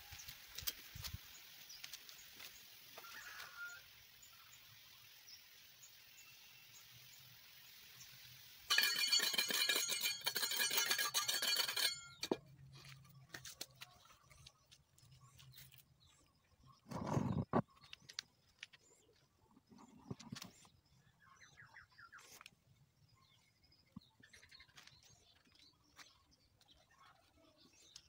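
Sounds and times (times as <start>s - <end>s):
metal trowel scraping cement: 8.7s - 12.5s.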